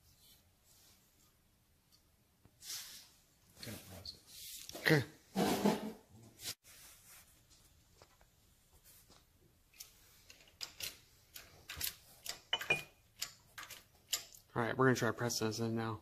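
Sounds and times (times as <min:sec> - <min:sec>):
metal clinks: 0:11.7 - 0:14.3.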